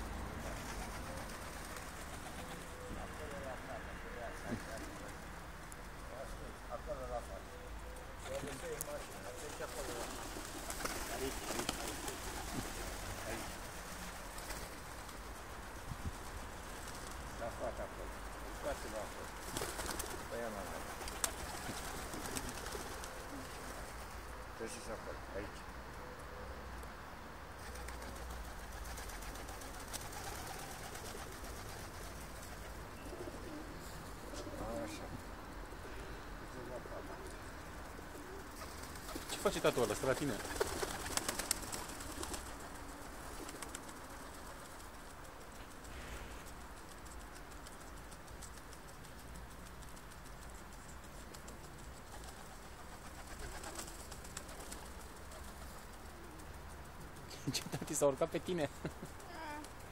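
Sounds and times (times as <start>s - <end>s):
pigeons cooing: 0.0s - 15.6s, 16.5s - 24.9s, 27.6s - 45.8s, 51.2s - 57.8s
pigeon wing flap: 0.1s - 2.9s, 4.4s - 5.3s, 8.2s - 17.8s, 18.5s - 24.2s, 27.6s - 33.6s, 38.1s - 59.9s.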